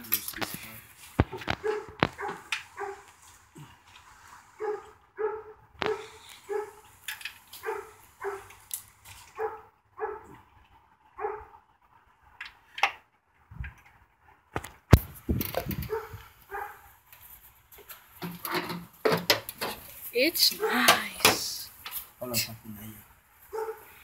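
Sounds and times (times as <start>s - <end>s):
dog barking: 1.4s - 3.1s, 4.6s - 6.8s, 7.6s - 8.5s, 9.3s - 10.4s, 11.2s - 11.6s, 15.8s - 16.9s, 23.5s - 24.0s.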